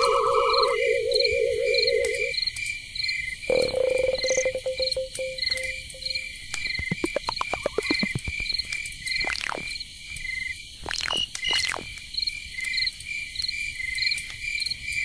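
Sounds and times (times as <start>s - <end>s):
cricket-like electronic chirps: 0.0s - 14.1s
ringing synth note: 3.5s - 6.3s
wavering synthetic tone: 3.5s - 8.4s
quick pitched blips sliding: 6.0s - 8.5s.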